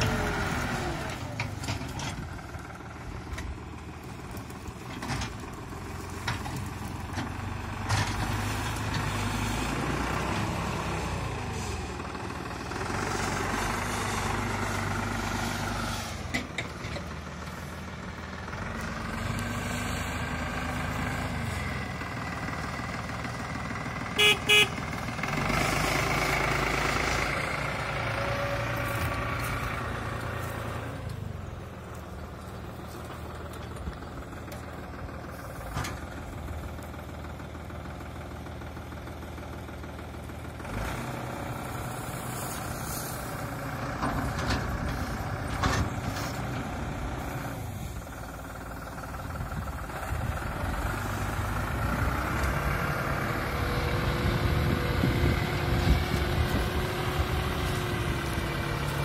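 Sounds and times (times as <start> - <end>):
tractor diesel engine under load: 0.0 - 59.0
horn toots: 24.2 - 24.8.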